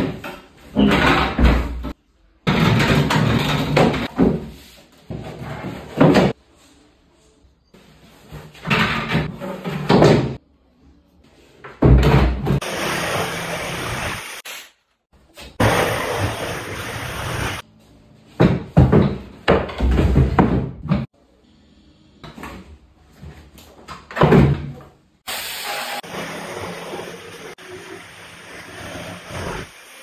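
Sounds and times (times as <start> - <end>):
cabinet knocks and scrapes: 18.4 - 21.1.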